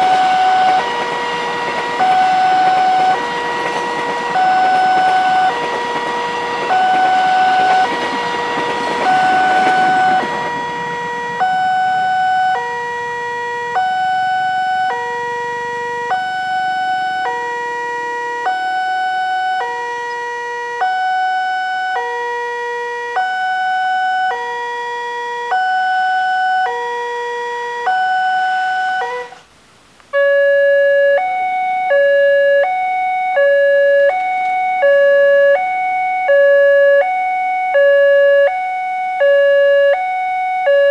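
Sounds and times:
level-crossing alarm chimes: 0:00.0 - 0:22.3, 0:25.5 - 0:26.9, 0:27.8 - 0:29.4, 0:30.2 - 0:40.9
electric train rumbling: 0:00.0 - 0:24.8
higher two-tone crossing alarm: 0:00.0 - 0:29.5, 0:30.1 - 0:40.9.

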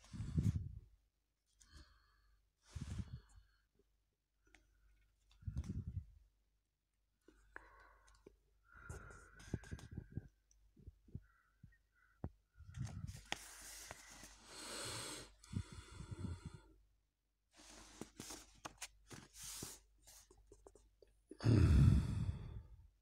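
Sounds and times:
page turning: 0:12.7 - 0:14.4, 0:17.6 - 0:20.8
fingers rubbing pages: 0:12.8 - 0:14.4, 0:17.6 - 0:20.8
paper rustling: 0:12.8 - 0:14.4, 0:17.6 - 0:20.8.

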